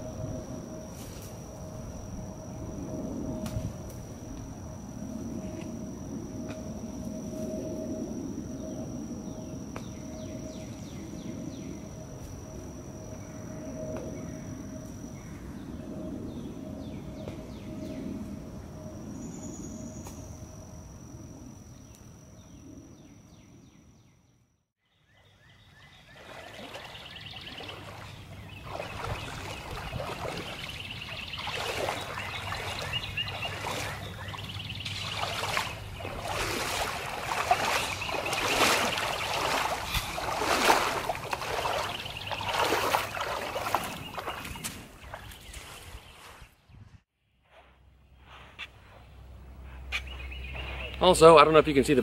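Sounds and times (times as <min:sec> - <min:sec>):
person wading through water: 0:26.0 - 0:46.4.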